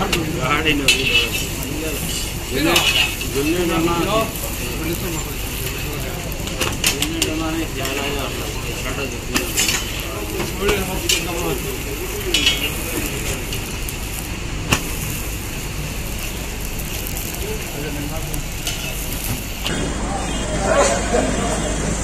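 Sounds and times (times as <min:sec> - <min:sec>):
flatbread sizzling in oil: 0:00.0 - 0:22.0
metal spatula clicking on griddle: 0:09.3 - 0:11.6, 0:12.2 - 0:15.0.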